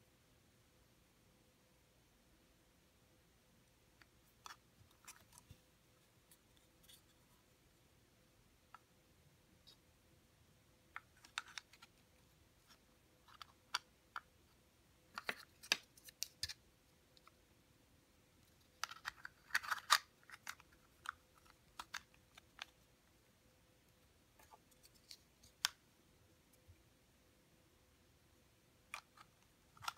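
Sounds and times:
puzzle pieces clicking and knocking: 18.7s - 22.8s.

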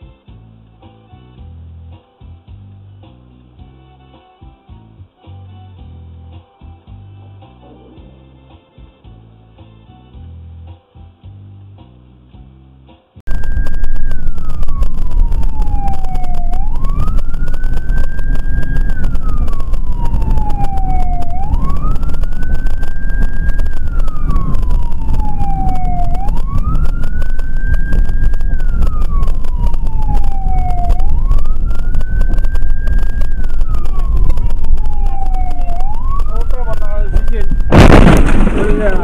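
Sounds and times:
emergency siren wailing: 13.3s - 39.0s
vehicle and road rumble: 13.3s - 39.0s.

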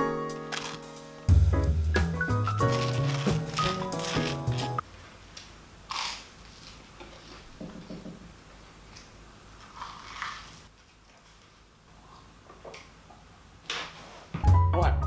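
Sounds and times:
background music: 0.0s - 4.8s, 14.4s - 15.0s
person chewing crunchy toast: 5.9s - 6.8s.

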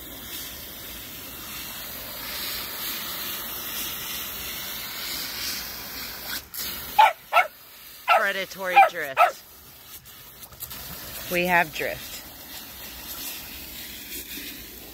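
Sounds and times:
hose water spraying into pot: 0.0s - 14.9s
small dog yipping: 7.0s - 7.5s, 8.8s - 9.4s.

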